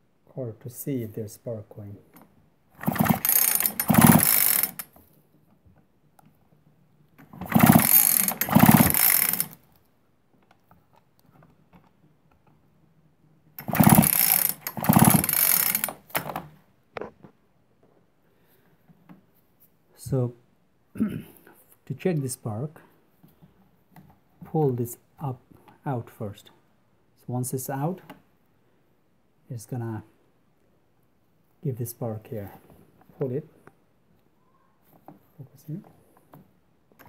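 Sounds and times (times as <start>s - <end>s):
engine turning over: 2.8s - 4.9s, 7.2s - 9.6s, 13.6s - 16.4s
chainsaw recoil starter pulls: 2.8s - 5.0s, 7.2s - 9.6s, 13.6s - 16.5s.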